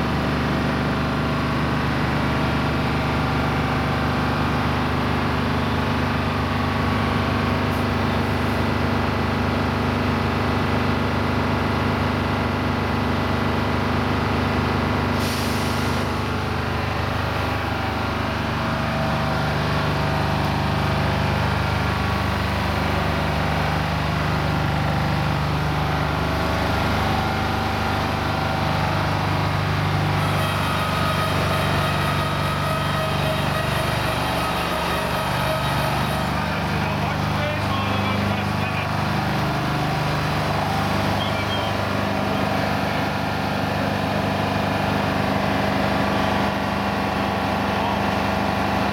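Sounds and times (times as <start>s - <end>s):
diesel truck engine running: 0.0s - 48.9s
air brake hiss: 15.2s - 16.1s.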